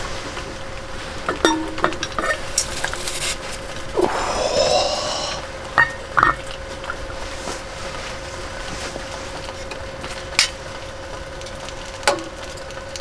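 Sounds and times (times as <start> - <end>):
steady hum: 0.0 - 13.0
metal cookware clinking: 1.4 - 2.4.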